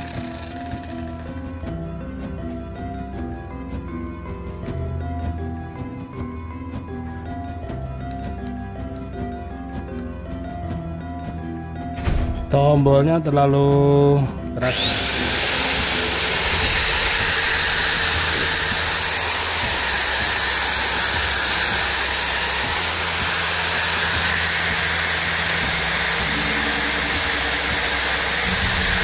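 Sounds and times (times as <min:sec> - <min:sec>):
angle grinder whining: 0:00.0 - 0:07.1, 0:14.5 - 0:29.0.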